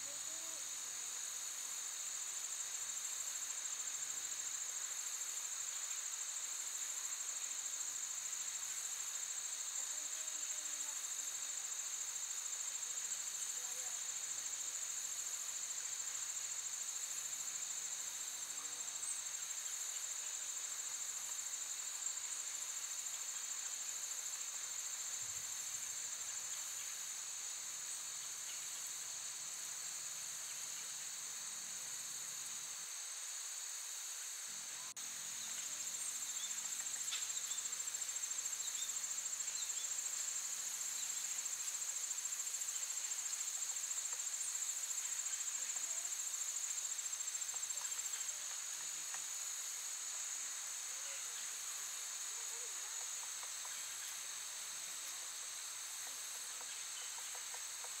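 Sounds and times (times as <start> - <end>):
high-pitched insect chorus: 0.0 - 58.0.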